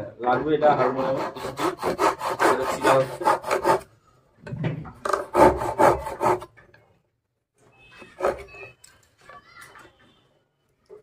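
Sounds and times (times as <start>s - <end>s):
hand saw cutting wood: 0.7s - 3.9s, 5.1s - 6.5s.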